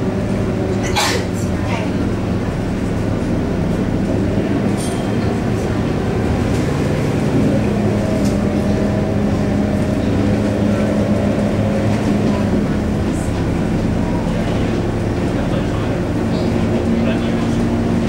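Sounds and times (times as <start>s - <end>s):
bus diesel engine drone: 0.0s - 18.0s
road and tyre noise: 0.0s - 18.0s.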